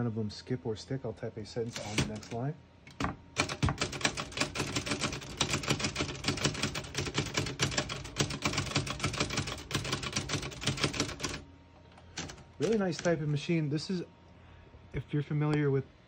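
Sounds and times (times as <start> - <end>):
typewriter keystroke clacks: 1.7 - 11.4, 12.2 - 13.1.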